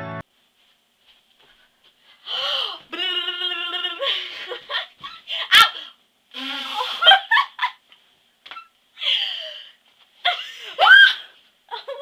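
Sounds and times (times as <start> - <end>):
girls giggling: 6.8 - 7.8, 11.7 - 12.0.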